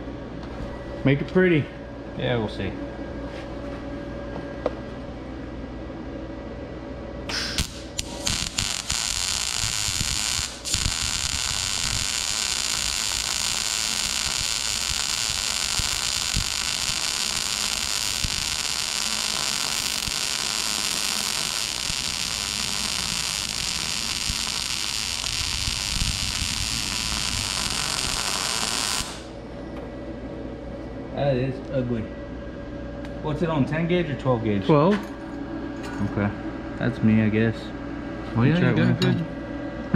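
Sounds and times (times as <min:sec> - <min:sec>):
welding arc crackling sizzle: 0:07.3 - 0:29.4.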